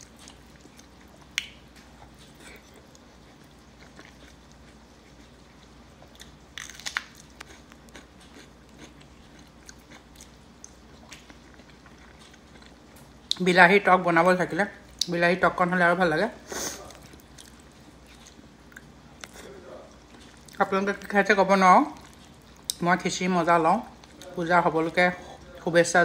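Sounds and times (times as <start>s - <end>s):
person chewing food: 0.0s - 13.4s, 16.7s - 20.6s, 21.9s - 22.8s, 23.9s - 24.4s
crunchy bite: 6.1s - 12.7s.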